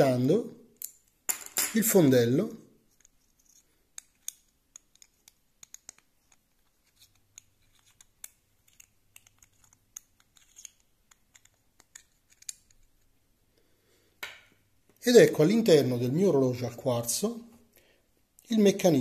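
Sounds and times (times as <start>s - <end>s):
small metal clicks and scrapes: 2.9s - 13.1s.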